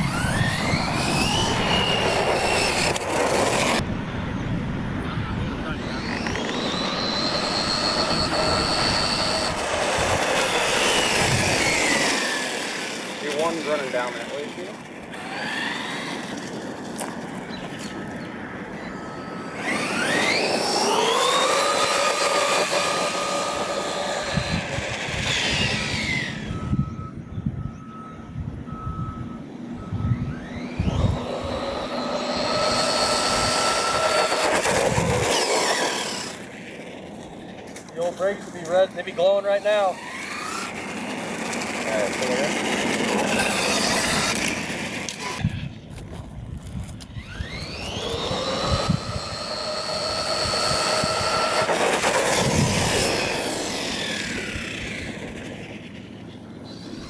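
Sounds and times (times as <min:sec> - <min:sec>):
electric motor whining: 0:00.0 - 0:04.0, 0:04.7 - 0:27.3, 0:29.6 - 0:57.0
tyre noise on pavement: 0:05.8 - 0:26.3, 0:32.1 - 0:48.9.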